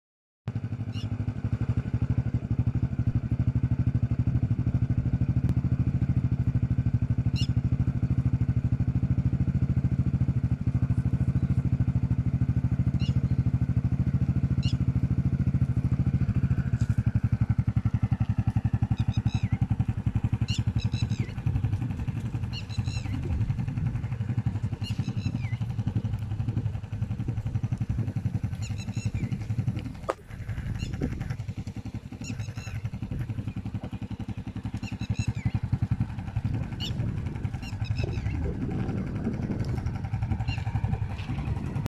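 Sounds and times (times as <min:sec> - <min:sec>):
motorcycle engine idling: 0:00.5 - 0:41.9
birds chirping: 0:07.2 - 0:07.7, 0:12.8 - 0:15.0, 0:15.8 - 0:41.8.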